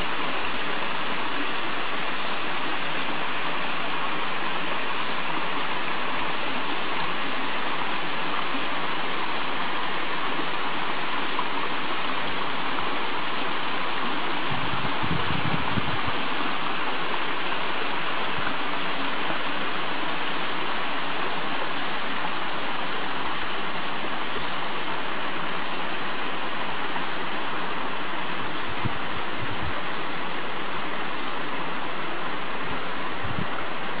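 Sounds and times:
stream rushing over rocks: 0.0 - 34.0.

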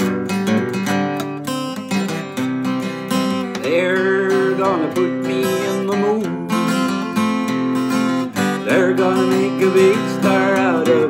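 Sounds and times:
acoustic guitar strumming: 0.0 - 11.0
man singing: 3.5 - 11.0.

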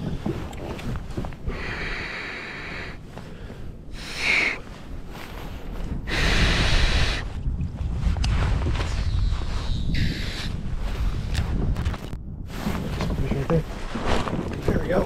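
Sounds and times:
person breathing heavily: 1.4 - 7.4.

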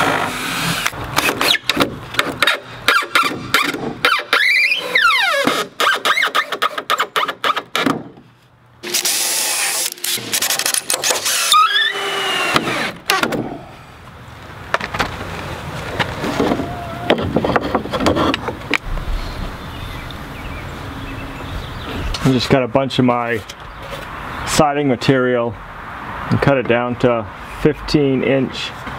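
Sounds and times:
cordless drill driving screws: 8.8 - 13.2.

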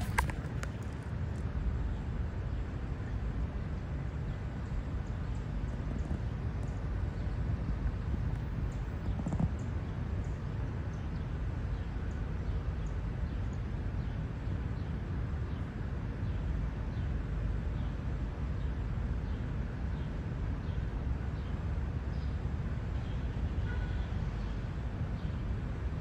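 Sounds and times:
small birds chirping: 0.0 - 0.9
street traffic rumble: 0.0 - 26.0.

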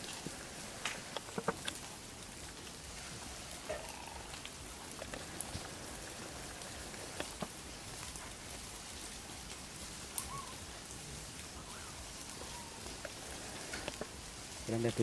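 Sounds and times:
faint clicks and ticks: 0.0 - 15.0
outdoor background hiss: 0.0 - 15.0.

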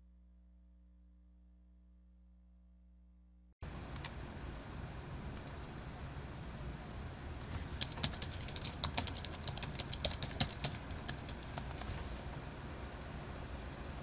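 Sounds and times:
computer keyboard typing: 7.6 - 11.9.

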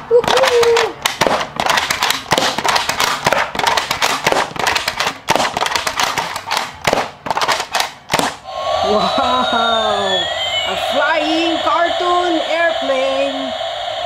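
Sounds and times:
darts slapping cardboard box: 0.2 - 8.4
toy dart blaster clicks and pops: 0.2 - 8.4.

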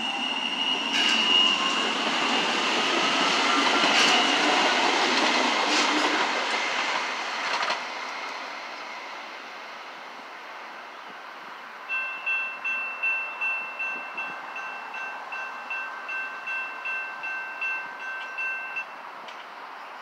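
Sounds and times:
departing train noise: 0.0 - 20.0
crossing bell two-tone dings: 11.9 - 19.0.

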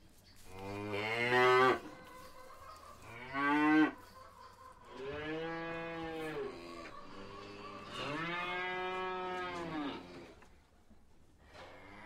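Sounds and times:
cattle mooing: 5.1 - 10.2.

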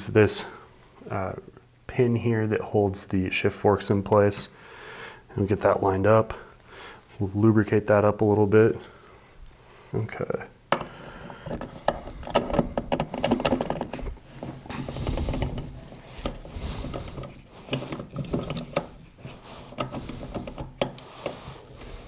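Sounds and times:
metal transmission parts clicking and scraping: 11.4 - 22.0.

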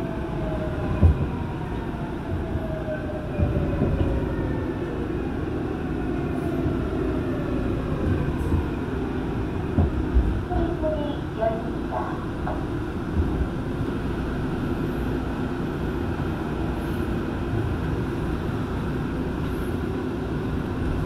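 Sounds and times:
train wheels rumbling on rail: 0.0 - 21.0
low thumps: 12.4 - 13.6.

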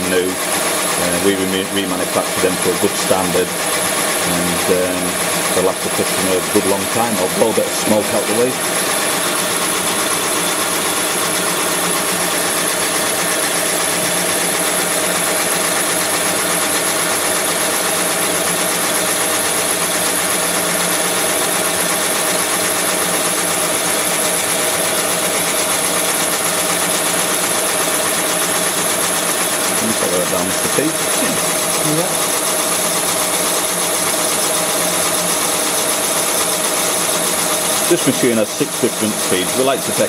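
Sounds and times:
boring machine whining: 0.0 - 40.0.

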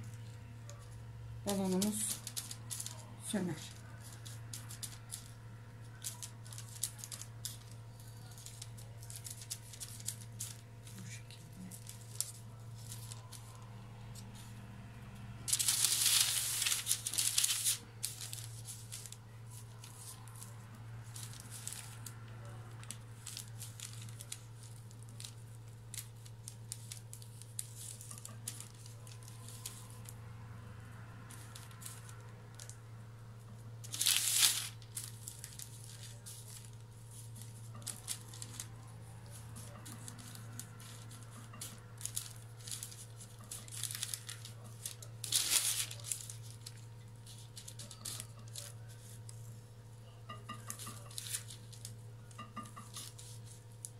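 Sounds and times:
baking paper crinkling: 0.0 - 53.9.

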